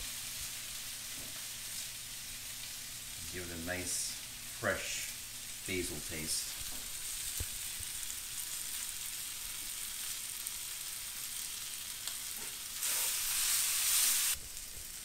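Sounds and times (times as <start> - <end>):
vegetables sizzling in a skillet: 0.0 - 15.0.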